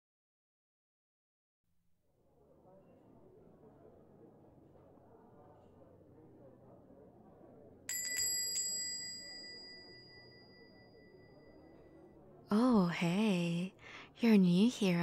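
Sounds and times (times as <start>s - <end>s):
background murmur: 2.3s - 14.2s
shop door bell ringing: 7.9s - 12.1s.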